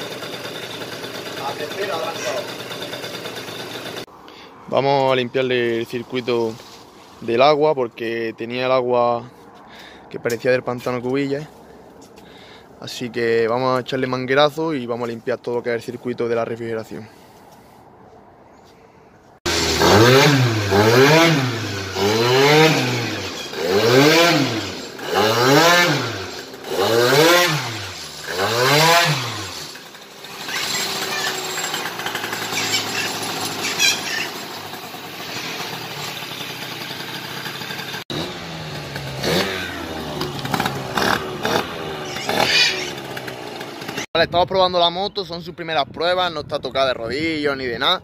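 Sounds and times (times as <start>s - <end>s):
scooter engine revving: 0.0s - 4.1s, 19.4s - 44.1s.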